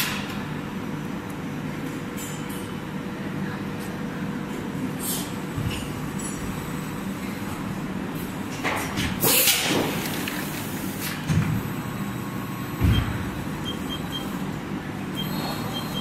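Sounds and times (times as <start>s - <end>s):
machine humming: 9.8s - 16.0s.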